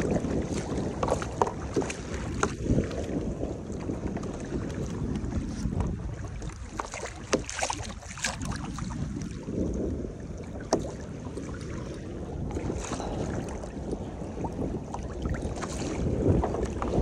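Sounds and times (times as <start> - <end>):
water lapping against kayak hull: 0.0 - 17.0
wind buffeting microphone: 0.0 - 17.0
sharp knocks or splashes: 6.7 - 9.0.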